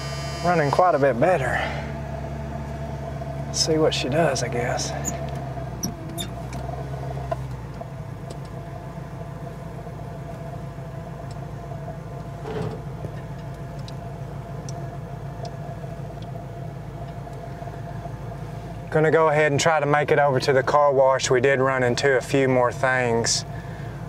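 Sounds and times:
high whine: 0.0s - 2.1s
car engine idling: 0.0s - 24.0s.

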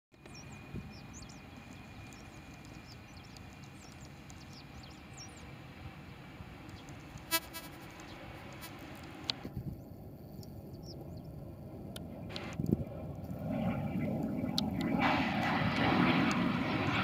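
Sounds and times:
birds chirping: 0.2s - 11.4s
distant jet taking off: 0.2s - 17.0s.

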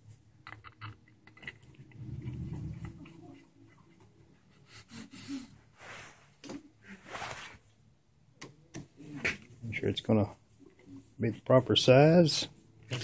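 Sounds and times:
low handling rumble: 1.8s - 3.5s
hands rubbing and scraping: 5.8s - 7.6s.

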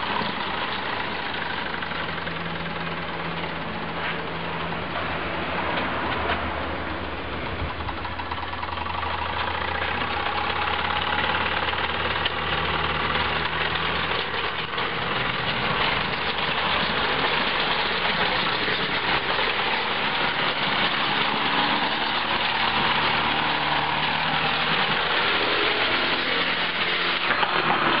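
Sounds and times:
toy steam engine hiss and clatter: 8.0s - 28.0s.

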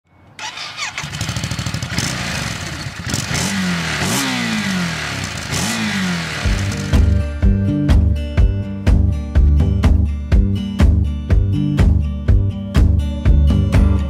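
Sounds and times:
motorcycle engine revving: 0.4s - 8.2s.

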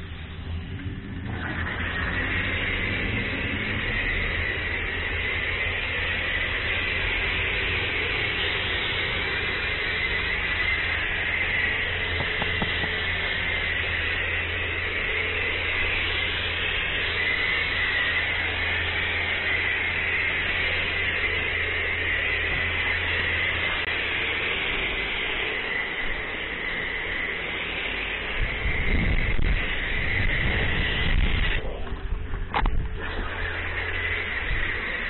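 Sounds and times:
foam gun hissing: 0.0s - 35.0s
steady low hum: 0.0s - 35.0s
rough rumbling: 28.4s - 35.0s.

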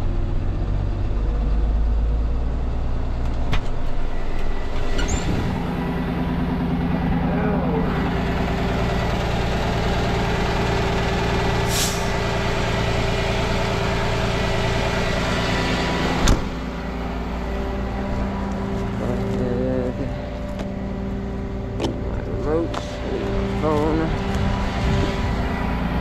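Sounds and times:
diesel engine idling: 0.0s - 26.0s
air brake hiss: 11.7s - 12.1s
cab door slamming: 16.2s - 16.6s.

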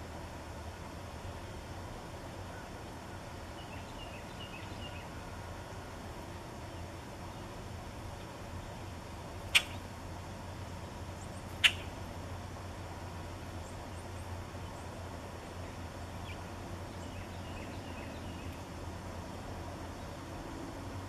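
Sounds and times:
faint songbird chirps: 1.2s - 21.0s
harsh bird chack calls: 9.5s - 9.8s, 11.5s - 12.0s.

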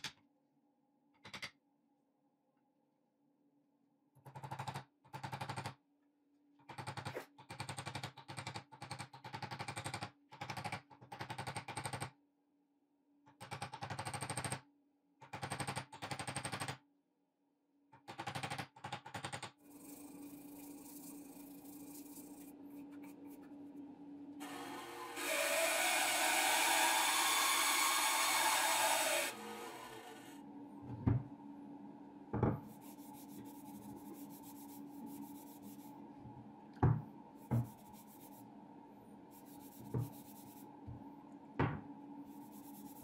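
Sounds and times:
machine whirring: 24.4s - 30.4s.

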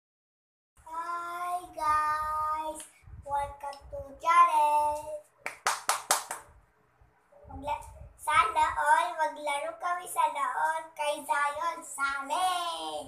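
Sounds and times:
boy singing: 0.8s - 5.3s
hand claps: 5.4s - 6.5s.

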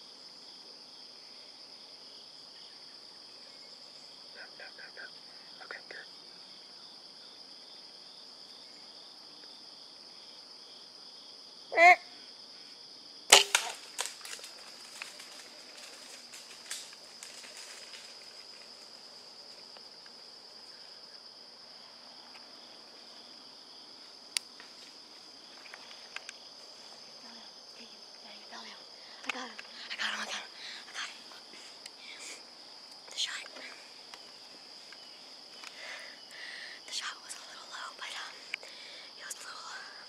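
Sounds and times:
insects chirring: 0.0s - 40.0s
bow string release crack: 13.3s - 15.3s
cracks and rustling in brush: 13.3s - 20.3s, 24.3s - 26.7s, 32.9s - 35.8s.

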